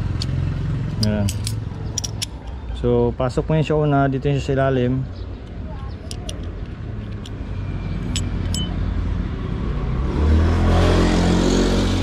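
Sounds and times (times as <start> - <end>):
light metal clicks: 0.2 - 2.7, 5.4 - 7.4
vehicle engine passing by: 7.5 - 12.0.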